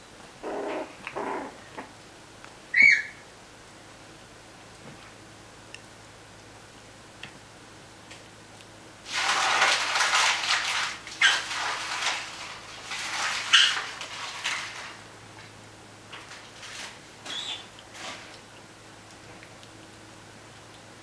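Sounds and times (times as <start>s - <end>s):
puppy squeaks: 2.7s - 3.2s, 17.3s - 17.7s
puppies scuffling on blanket: 9.1s - 19.6s.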